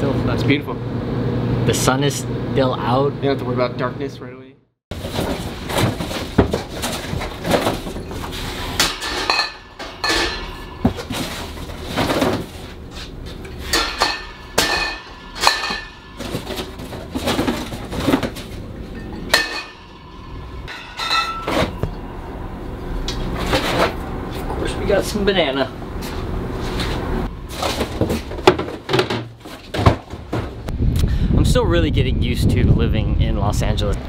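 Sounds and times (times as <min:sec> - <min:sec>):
glass bottles clinking: 0:05.4 - 0:12.5, 0:13.4 - 0:22.1.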